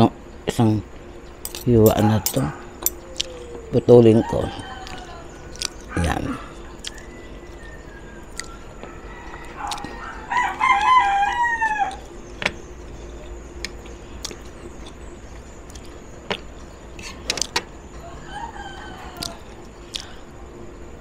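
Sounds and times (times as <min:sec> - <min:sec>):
rooster crowing: 0:01.8 - 0:12.2, 0:17.8 - 0:20.2.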